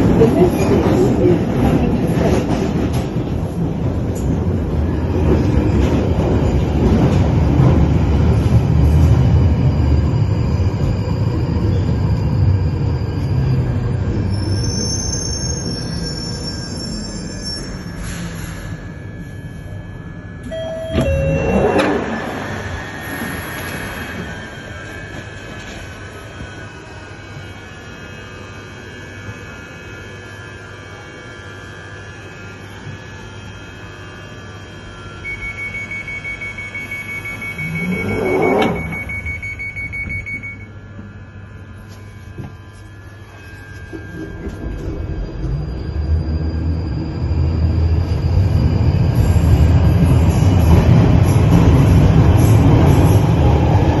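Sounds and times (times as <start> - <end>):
train humming at platform: 0.0 - 54.0
train motors and wheels rumbling: 0.0 - 54.0
door-closing alarm beeps: 20.4 - 24.4, 35.2 - 40.8
train doors sliding shut: 20.4 - 24.4, 37.8 - 39.1.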